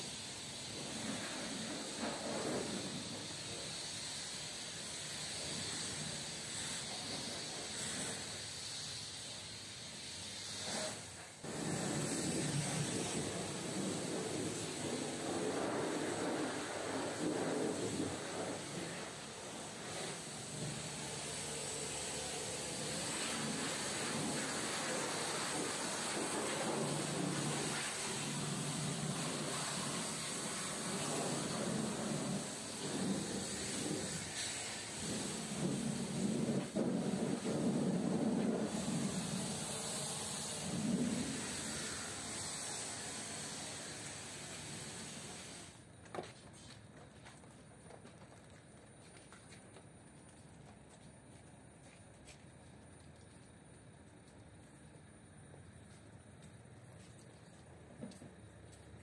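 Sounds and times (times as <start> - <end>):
pressure washer spraying water: 0.0 - 45.8
steady hiss: 0.0 - 59.0.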